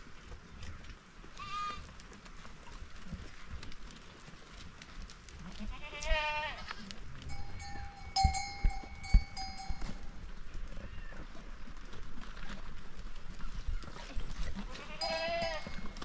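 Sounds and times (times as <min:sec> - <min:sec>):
sheep bleating: 0:01.4 - 0:01.9, 0:05.6 - 0:06.9, 0:14.6 - 0:15.9.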